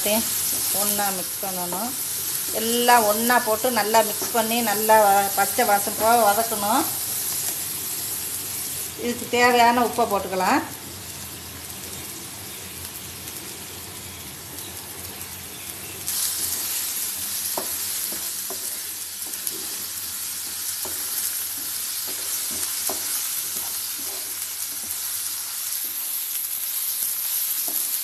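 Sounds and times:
masala sizzling in oil: 0:00.0 - 0:28.0
spatula scraping and tapping pan: 0:17.5 - 0:25.0.

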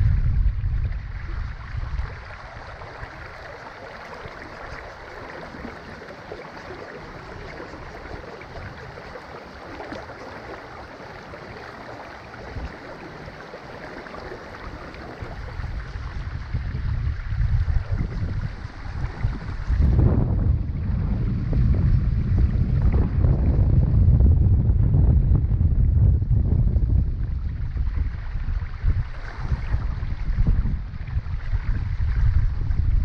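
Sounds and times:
creek water running over stones: 0:00.0 - 0:21.8
wind buffeting microphone: 0:00.0 - 0:33.0.

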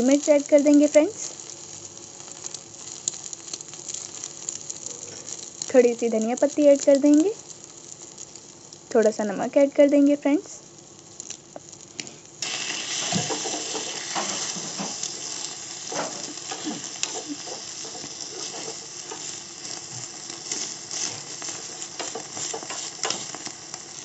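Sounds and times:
omelette sizzling in a pan: 0:00.0 - 0:24.0
metal spoon scraping a pan: 0:15.9 - 0:19.8, 0:20.4 - 0:23.5.

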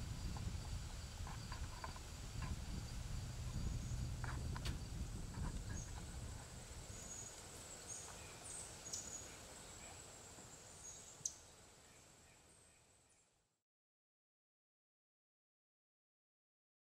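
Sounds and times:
high insect drone: 0:00.0 - 0:13.2
bird chirps: 0:06.9 - 0:10.0.

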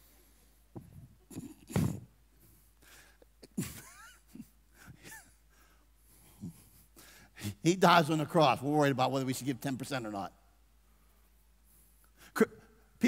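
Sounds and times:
man breathing and chuckling: 0:02.8 - 0:07.4.

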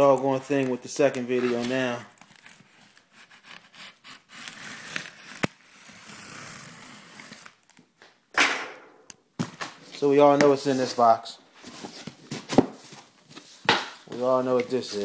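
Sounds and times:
cardboard scraping and rubbing: 0:01.3 - 0:07.5, 0:11.6 - 0:15.0.

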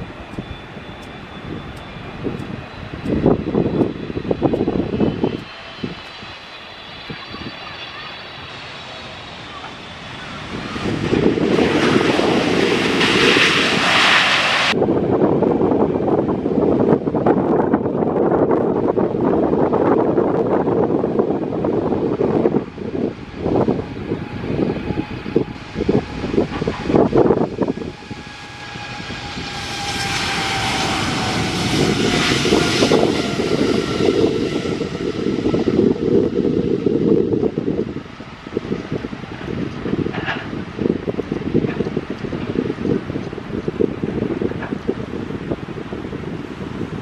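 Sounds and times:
jet engines on takeoff: 0:00.0 - 0:47.0
wind buffeting microphone: 0:00.0 - 0:47.0
thin engine whine: 0:20.7 - 0:38.9.

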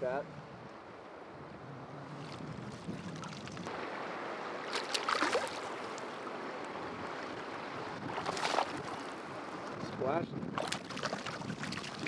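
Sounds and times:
river water running: 0:00.0 - 0:09.9, 0:10.5 - 0:12.0
fish splashing at surface: 0:04.6 - 0:06.0, 0:08.2 - 0:09.1.

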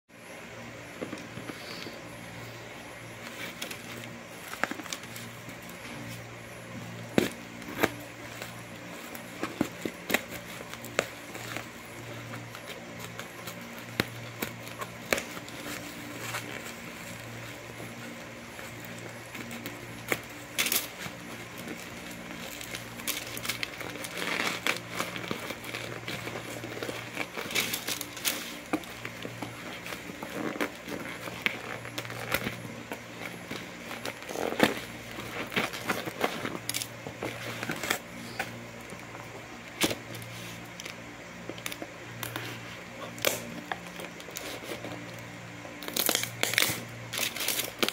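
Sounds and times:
steady low hum: 0:00.1 - 0:47.9
bubble wrap crinkling: 0:00.4 - 0:47.9.

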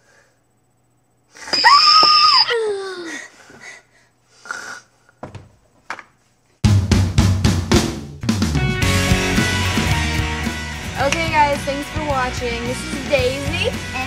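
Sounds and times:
falling whistle-like tone: 0:01.5 - 0:02.6
girl fake snoring: 0:04.4 - 0:04.9.

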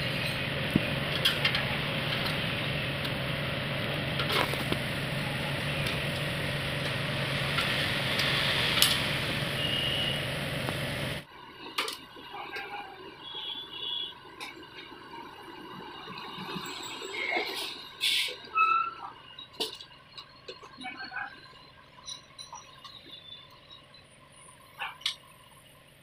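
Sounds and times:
mechanical hum and hiss: 0:00.0 - 0:11.2.

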